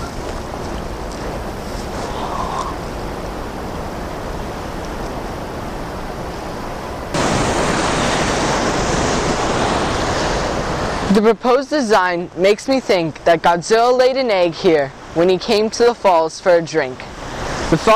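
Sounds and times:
waterfall rushing: 0:00.0 - 0:11.3.

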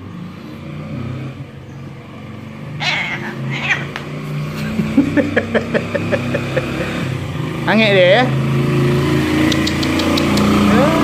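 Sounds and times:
vehicle engine hum: 0:00.0 - 0:11.0
cat meowing: 0:02.8 - 0:04.1.

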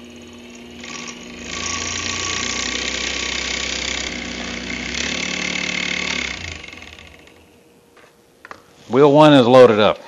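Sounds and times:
electric motor running: 0:00.0 - 0:07.6.

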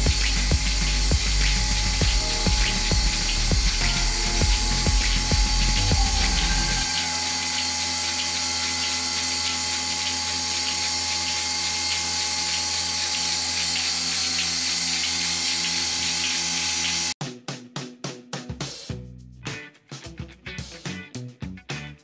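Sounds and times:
milking machine pump pulsing: 0:00.0 - 0:17.2.

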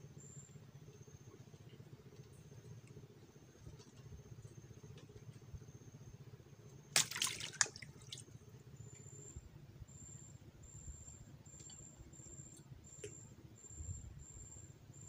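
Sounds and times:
water splash: 0:07.0 - 0:08.2.

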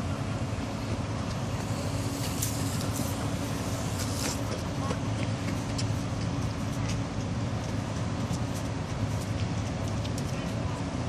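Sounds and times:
diesel engine droning: 0:00.0 - 0:11.0.

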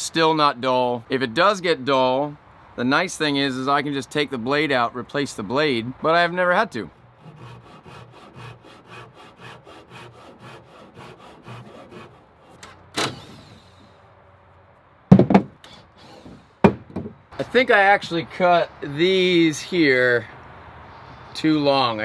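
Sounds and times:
hand saw cutting wood: 0:07.0 - 0:13.9
loud knocks: 0:15.1 - 0:15.6, 0:16.3 - 0:17.2.

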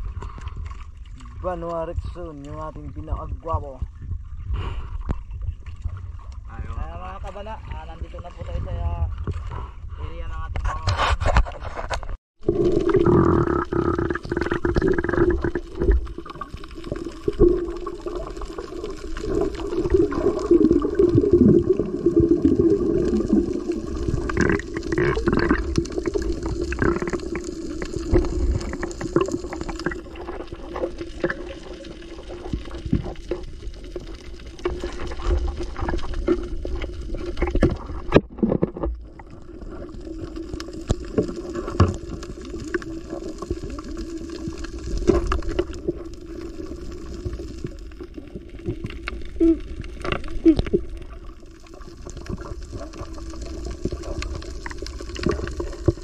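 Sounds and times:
muffled underwater gurgling: 0:12.4 - 0:56.0.

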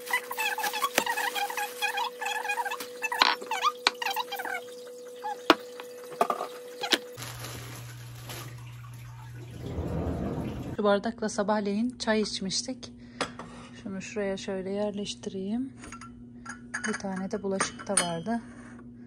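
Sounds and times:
plastic bag rustling: 0:00.0 - 0:03.1, 0:06.8 - 0:10.8.

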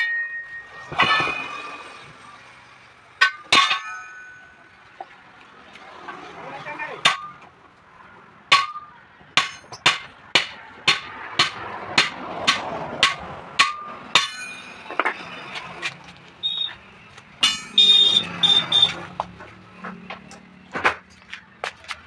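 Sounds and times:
hammer striking steel rim: 0:00.0 - 0:01.7, 0:03.2 - 0:04.6, 0:07.0 - 0:07.4, 0:08.5 - 0:15.2, 0:17.4 - 0:18.9
short high metallic rings: 0:03.2 - 0:04.8, 0:14.2 - 0:14.9, 0:17.4 - 0:19.0.

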